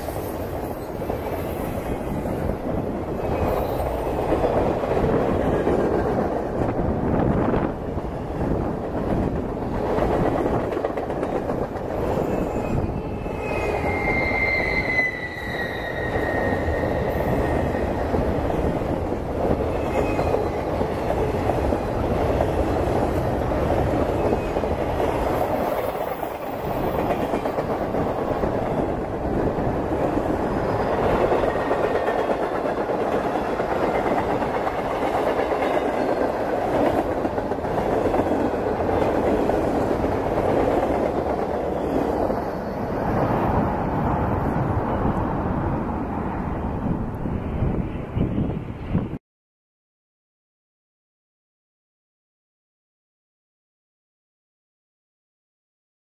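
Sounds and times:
train wheels rumbling on rails: 0.0 - 49.2
high wheel squeal: 12.2 - 18.1.

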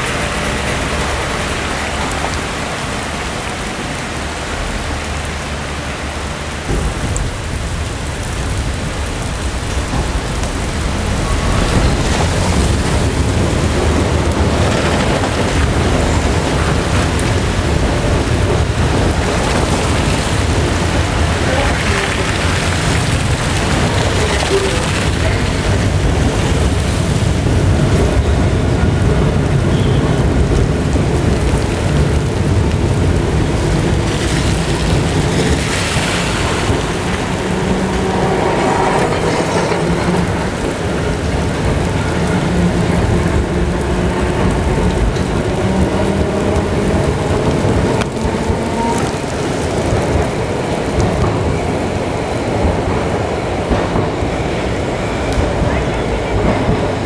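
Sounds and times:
rain hiss on wet rails: 0.0 - 57.0
tram running gear rumble: 0.0 - 57.0.

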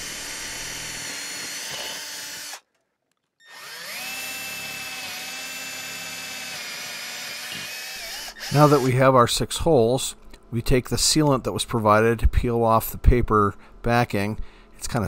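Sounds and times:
cordless drill whining: 0.0 - 2.6, 3.4 - 9.0.

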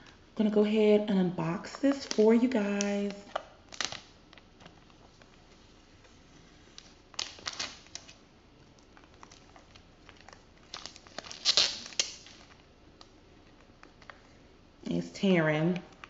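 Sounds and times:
plastic wrap crinkling and tearing: 1.7 - 5.5, 6.6 - 14.2.

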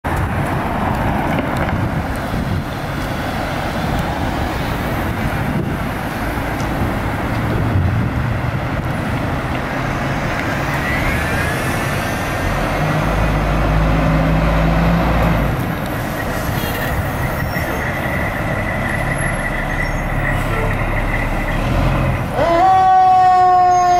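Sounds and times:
street traffic passing: 0.0 - 23.9
diesel truck engine revving: 0.2 - 23.1
rising whine: 10.4 - 15.4
steady high tone: 17.0 - 22.8.

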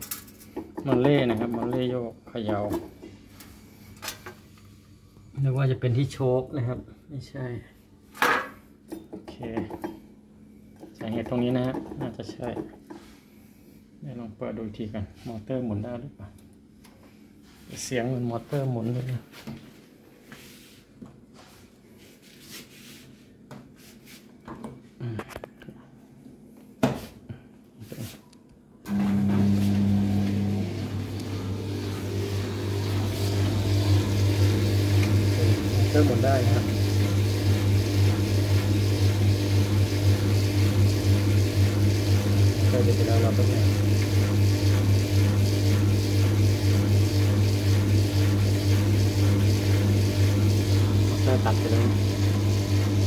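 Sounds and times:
washing machine motor humming: 28.8 - 53.0.

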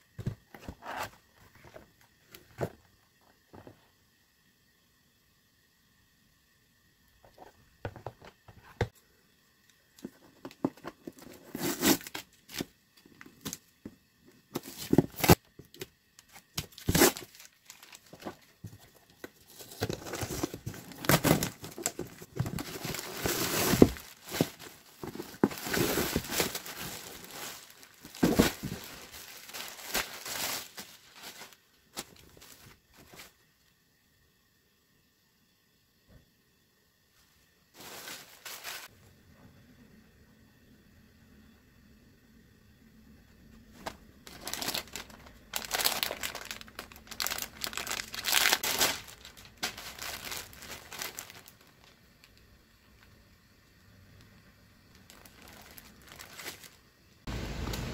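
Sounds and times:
cardboard and tape tearing: 11.2 - 12.7, 16.6 - 18.3, 19.5 - 30.8, 44.3 - 51.3
packaging crinkling: 14.6 - 33.2, 37.8 - 38.9, 43.8 - 52.4, 54.9 - 56.8.

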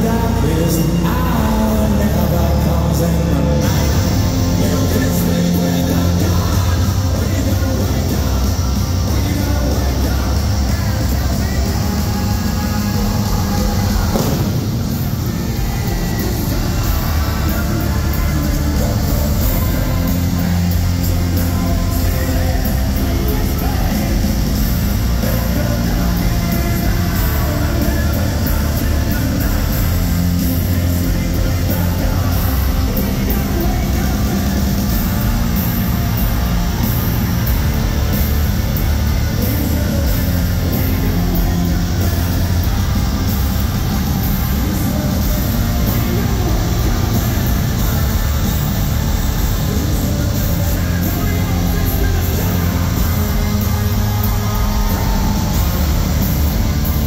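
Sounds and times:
electric guitar: 0.0 - 57.0
hard rock band playing live: 0.0 - 57.0.

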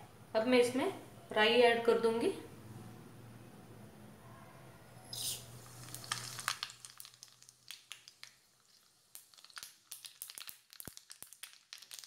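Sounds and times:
seeds crackling in hot oil: 5.1 - 12.0.

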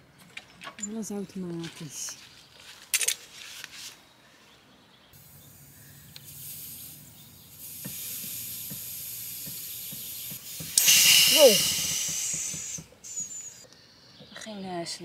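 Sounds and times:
air hissing out of valve: 5.2 - 13.6.

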